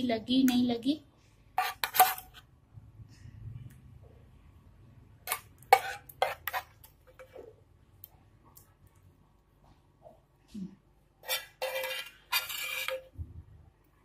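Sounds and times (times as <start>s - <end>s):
spoon scraping frying pan: 1.6s - 2.5s, 5.2s - 7.5s, 11.2s - 13.2s.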